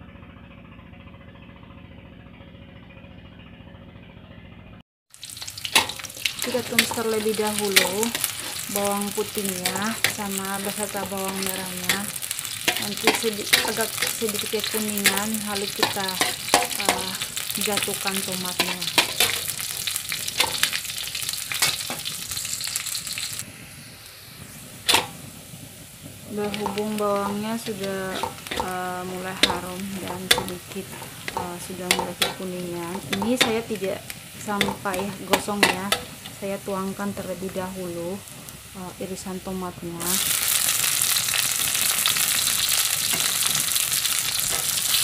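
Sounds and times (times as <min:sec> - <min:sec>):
small engine idling: 0:00.0 - 0:04.8
food sizzling in hot oil: 0:05.1 - 0:45.0
metal spatula scraping pan: 0:05.7 - 0:20.8, 0:21.5 - 0:22.1, 0:24.9 - 0:25.2, 0:26.3 - 0:36.5, 0:44.4 - 0:45.0.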